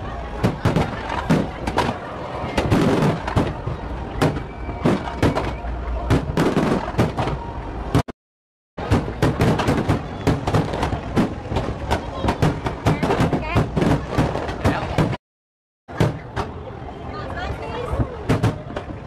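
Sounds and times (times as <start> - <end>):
fireworks bursting and crackling: 0.4 - 8.1, 8.8 - 15.2.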